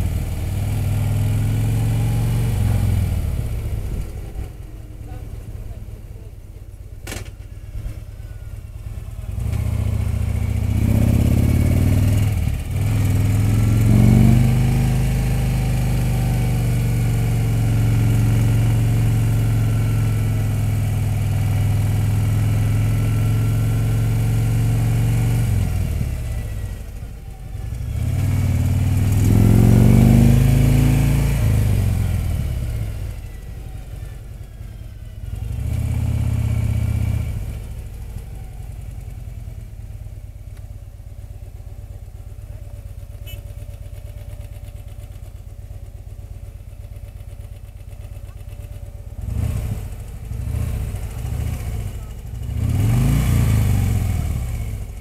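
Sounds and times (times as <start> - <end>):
motorcycle engine revving: 0.0 - 6.2, 7.0 - 55.0.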